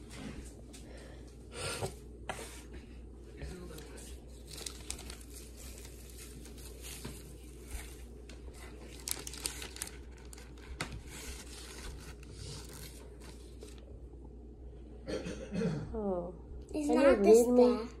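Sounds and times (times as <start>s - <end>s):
wrapping paper rustling and crinkling: 3.4s - 13.9s.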